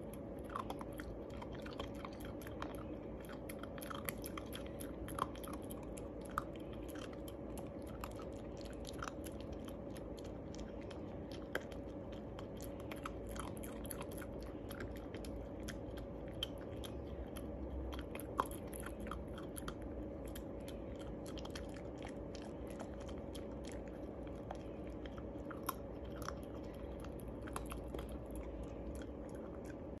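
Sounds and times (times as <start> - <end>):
dog chewing crunchy biscuit: 0.0 - 30.0.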